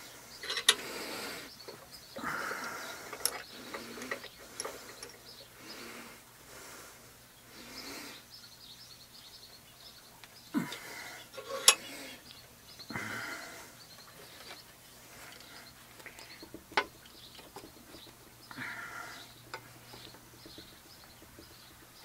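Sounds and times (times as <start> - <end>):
metal clicks and clunks: 0.4 - 0.8
faint bird chirps: 7.2 - 22.0.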